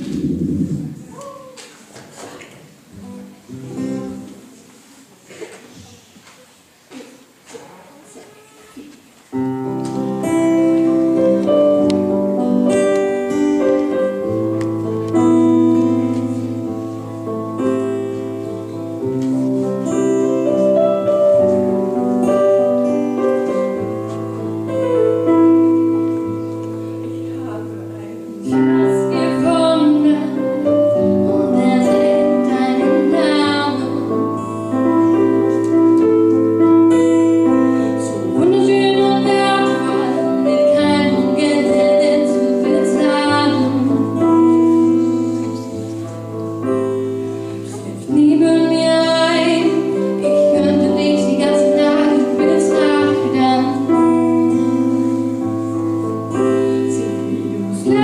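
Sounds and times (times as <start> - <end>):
piano: 0.0 - 6.0, 7.0 - 58.0
acoustic guitar: 0.0 - 58.0
girl singing: 28.4 - 35.0, 37.9 - 45.8, 47.7 - 55.4, 56.3 - 58.0.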